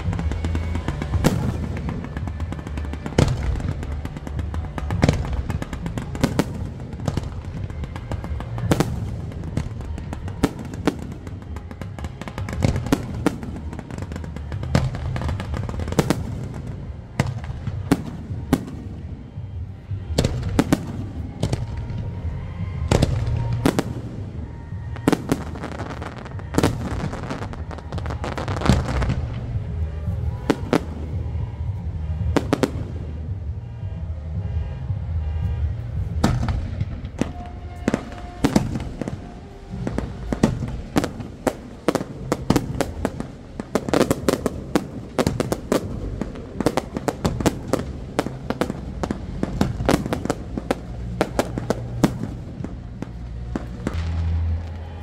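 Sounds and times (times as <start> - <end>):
fireworks bangs: 0.0 - 55.0
low rumble: 14.4 - 55.0.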